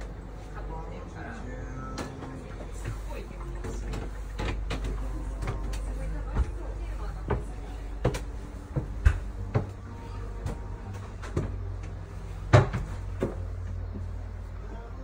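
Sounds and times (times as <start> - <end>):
steady low hum: 0.0 - 15.0
footsteps on wooden stairs: 3.6 - 12.0.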